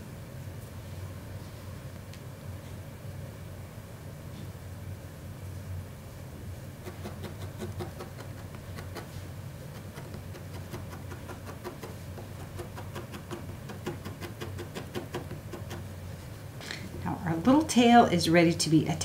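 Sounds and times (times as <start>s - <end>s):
steady low hum: 0.0s - 19.0s
felting needle poking wool: 6.8s - 15.9s.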